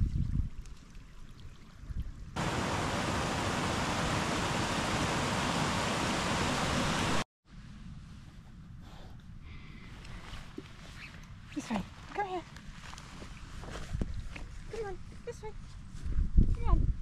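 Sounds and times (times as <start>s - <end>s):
stream rushing over rocks: 2.4s - 7.2s.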